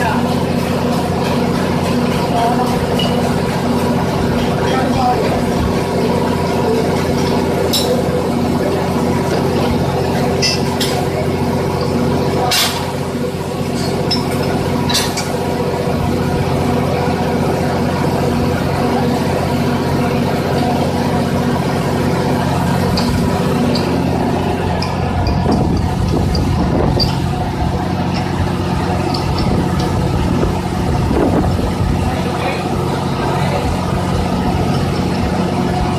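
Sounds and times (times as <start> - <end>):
engine running steadily: 0.0 - 35.9
tools clinking on metal pipe: 2.7 - 3.3, 10.4 - 11.0, 13.8 - 15.3.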